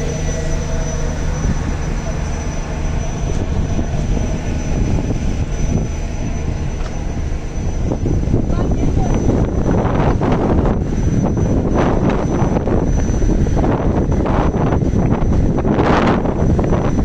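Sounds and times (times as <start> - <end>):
ship engines droning: 0.0 - 17.0
water noise: 0.0 - 17.0
wind: 0.0 - 17.0.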